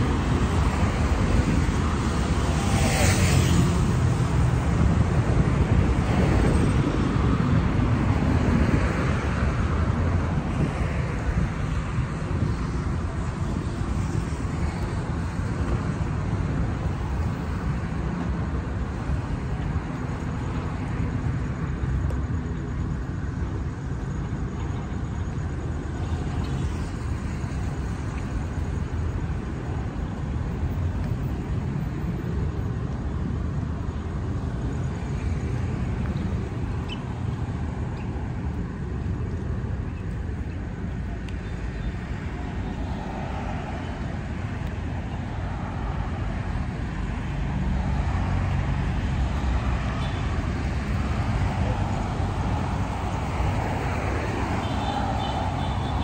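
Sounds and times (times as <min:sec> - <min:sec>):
car passing by: 0:00.0 - 0:12.6, 0:41.0 - 0:56.0
road traffic rumble: 0:00.0 - 0:56.0.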